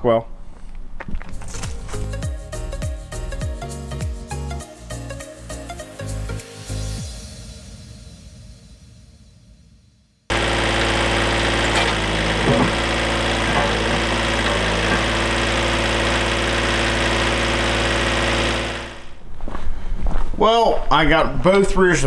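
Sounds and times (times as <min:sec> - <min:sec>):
tractor diesel engine running: 0:10.3 - 0:19.2.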